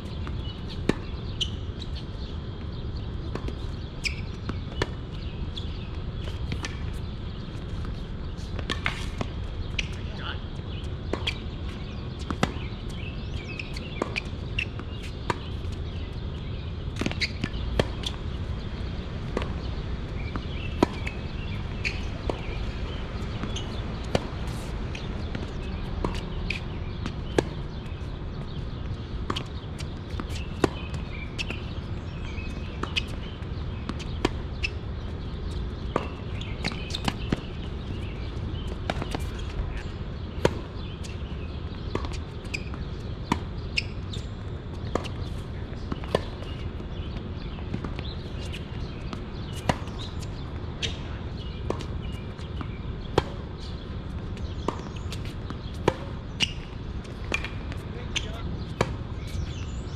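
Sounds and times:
tennis ball bouncing on court: 0:00.0 - 0:02.0, 0:03.2 - 0:10.0, 0:10.6 - 0:16.2, 0:16.9 - 0:18.4, 0:19.2 - 0:59.7
tennis ball hit with rackets: 0:54.4 - 0:59.5.

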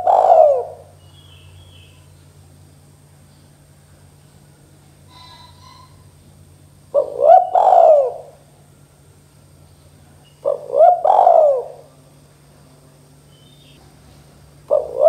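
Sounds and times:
dove cooing: 0:00.0 - 0:02.1, 0:05.0 - 0:08.6, 0:10.2 - 0:12.1, 0:14.6 - 0:15.0.

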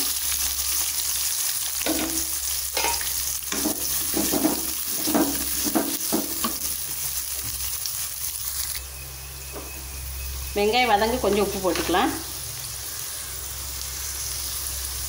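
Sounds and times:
onions sizzling in hot oil: 0:00.0 - 0:15.0.

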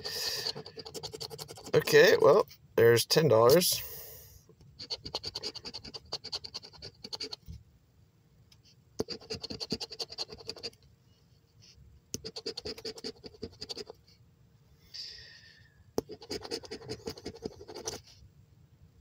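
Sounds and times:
scratching lottery ticket: 0:00.0 - 0:02.2, 0:04.8 - 0:07.4, 0:09.0 - 0:10.8, 0:12.2 - 0:14.0, 0:16.0 - 0:18.0.

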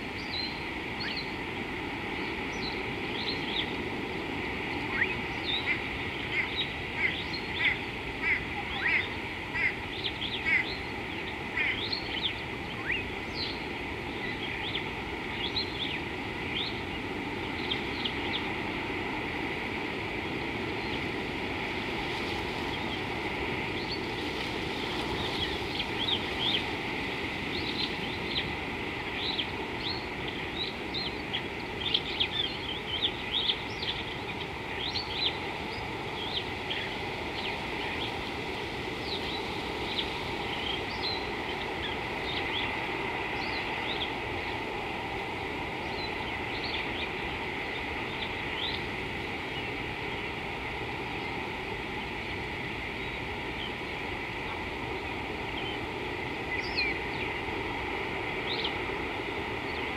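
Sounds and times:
birds chirping: 0:00.1 - 0:19.2, 0:22.2 - 0:44.6.

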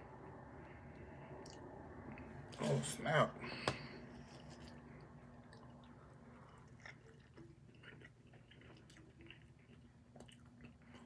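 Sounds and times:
low steady hum: 0:00.0 - 0:11.0
person chewing food: 0:04.1 - 0:11.0.

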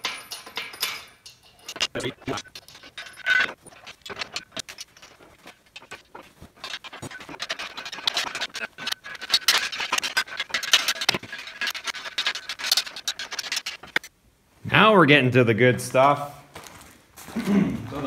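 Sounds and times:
wrench clicking and scraping on bolts: 0:00.0 - 0:14.1.

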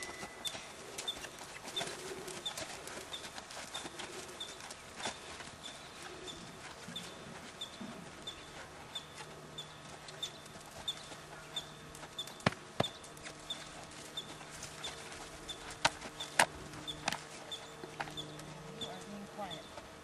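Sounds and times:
small bird chirping: 0:05.6 - 0:19.8.

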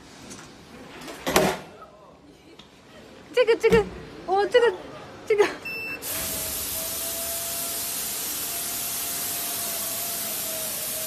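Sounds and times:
elevator running hiss: 0:06.0 - 0:11.0.

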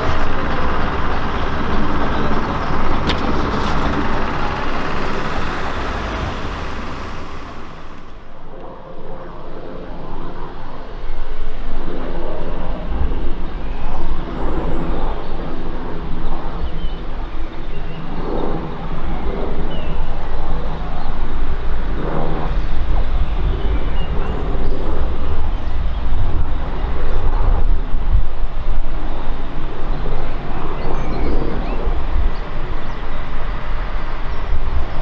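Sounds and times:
diesel railcar running close by: 0:00.0 - 0:08.6, 0:10.6 - 0:35.0
diesel train approaching: 0:00.0 - 0:08.6, 0:28.3 - 0:35.0
rail noise: 0:00.0 - 0:14.3, 0:18.5 - 0:35.0.

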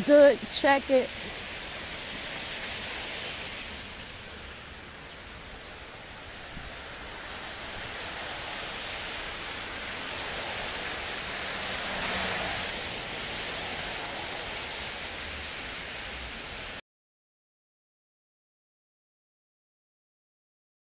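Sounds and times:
van passing: 0:00.0 - 0:16.2
car tyres on wet street: 0:00.0 - 0:16.8
rain hissing: 0:00.0 - 0:16.8.

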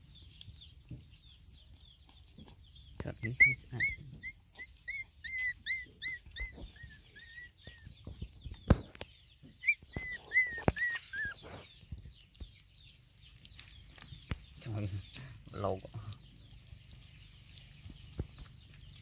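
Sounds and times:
puppy whimpering: 0:03.3 - 0:07.8, 0:09.6 - 0:11.4.

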